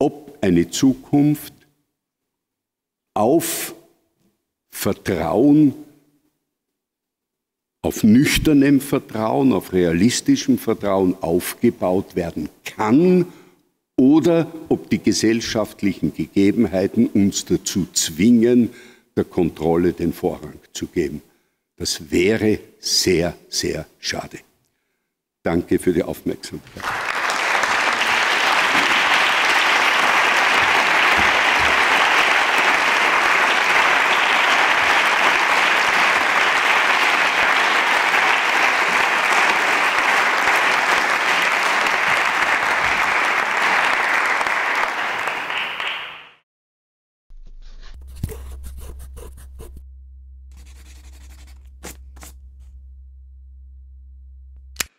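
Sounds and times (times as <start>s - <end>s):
audience applauding: 26.6s - 46.4s
low hum: 47.4s - 54.9s.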